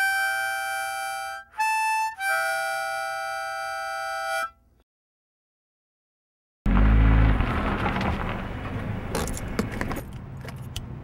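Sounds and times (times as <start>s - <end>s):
free-reed instrument chords: 0.0s - 4.7s.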